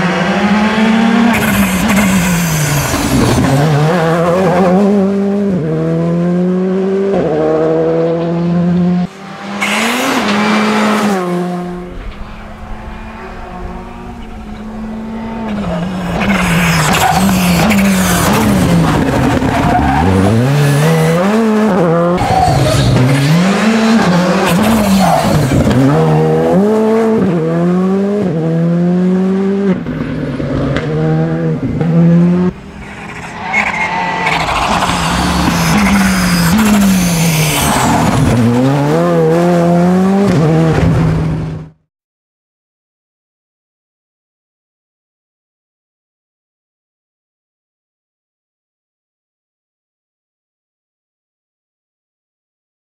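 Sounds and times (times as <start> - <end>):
rally car engine revving: 0.0 - 41.8.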